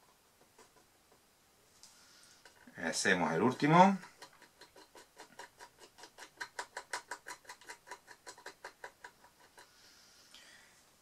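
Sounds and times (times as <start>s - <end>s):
wooden stick ticking in resin: 3.6s - 9.8s.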